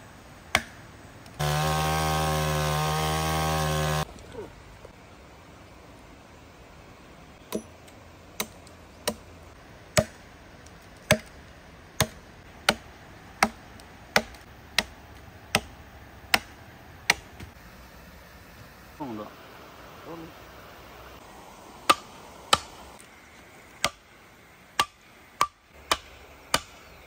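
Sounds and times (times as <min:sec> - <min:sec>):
axe chopping wood: 0:00.5 - 0:00.8, 0:08.4 - 0:09.2, 0:09.9 - 0:10.2, 0:11.1 - 0:11.4, 0:12.0 - 0:17.5, 0:21.9 - 0:22.7, 0:23.8 - 0:24.0, 0:24.8 - 0:26.8
chainsaw cutting: 0:01.4 - 0:04.1.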